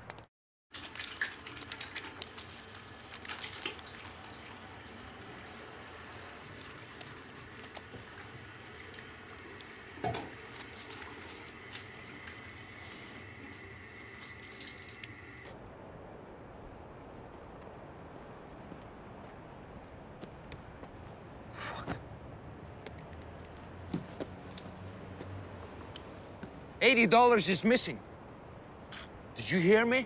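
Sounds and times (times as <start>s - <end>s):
splashes of face washing: 0.7s - 15.5s.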